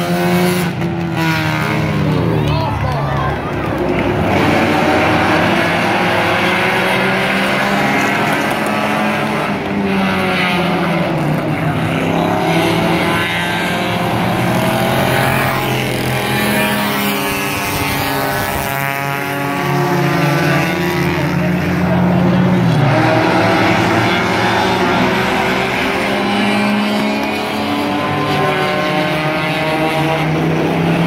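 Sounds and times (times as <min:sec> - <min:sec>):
race car engines passing: 0:00.0 - 0:31.0.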